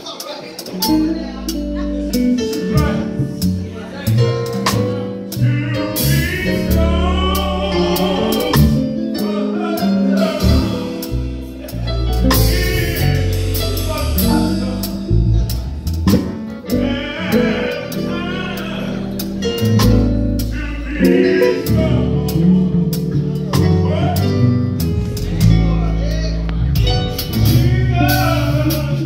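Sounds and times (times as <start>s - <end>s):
live gospel band: 0.0s - 29.0s
person singing: 4.8s - 15.4s, 16.1s - 25.9s, 27.0s - 29.0s
drum strikes: 12.2s - 18.2s, 19.1s - 24.0s.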